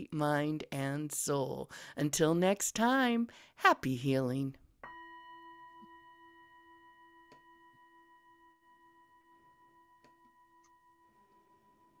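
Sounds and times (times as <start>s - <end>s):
singing bowl ringing: 4.8s - 12.0s.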